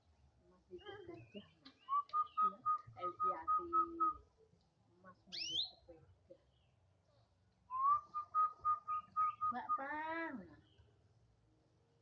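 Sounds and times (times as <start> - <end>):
canary chirping: 5.3 - 5.9.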